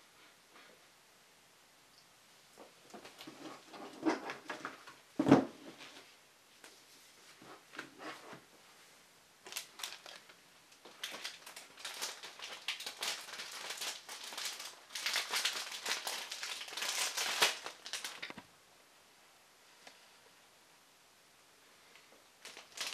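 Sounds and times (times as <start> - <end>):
plastic packaging crinkling: 9.4 - 18.4, 22.4 - 22.9.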